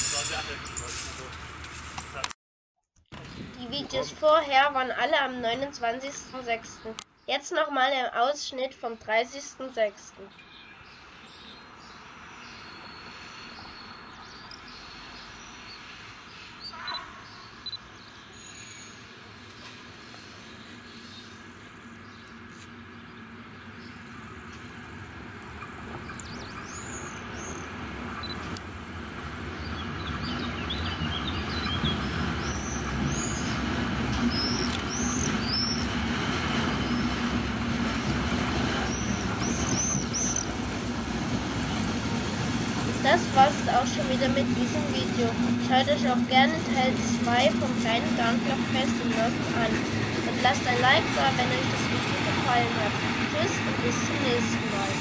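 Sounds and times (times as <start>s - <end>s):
diesel locomotive running: 0.0s - 2.3s, 3.2s - 7.0s, 7.9s - 55.0s
insects chirping: 10.4s - 40.8s.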